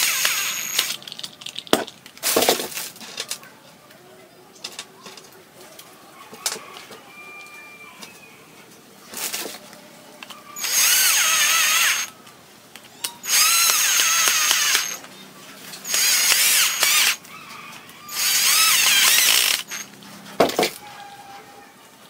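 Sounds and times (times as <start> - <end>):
cordless drill motor whine: 0.0 - 1.0, 10.6 - 12.1, 13.2 - 15.0, 15.8 - 17.2, 18.1 - 19.9.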